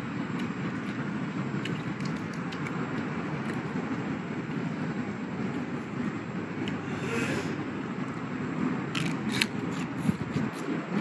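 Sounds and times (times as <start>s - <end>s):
wind buffeting microphone: 7.5s - 11.0s.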